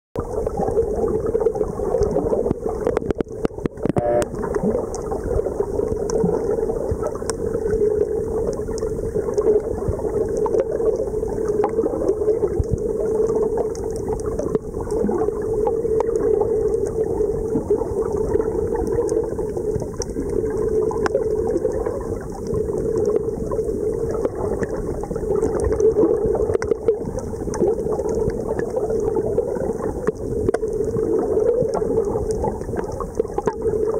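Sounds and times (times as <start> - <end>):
underwater water rushing: 0.2 - 33.9
clicks: 3.0 - 4.3.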